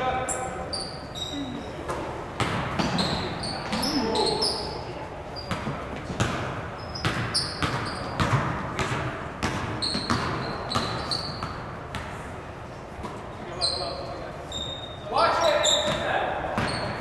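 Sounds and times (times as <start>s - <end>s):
sneakers squeaking on court: 0.3s - 12.3s, 13.0s - 17.0s
basketball bouncing on gym floor: 1.9s - 4.3s, 5.4s - 12.3s, 15.8s - 17.0s.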